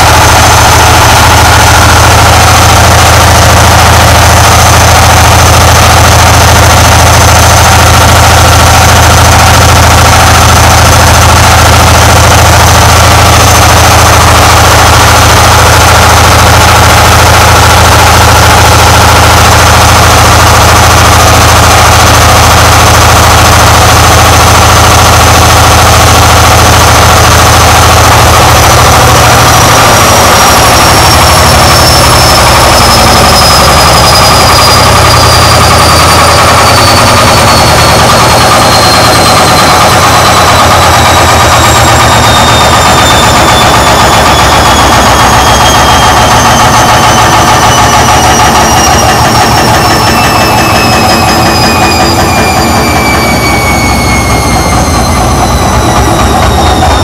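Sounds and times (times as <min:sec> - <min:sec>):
thin high whine: 0:00.0 - 0:57.0.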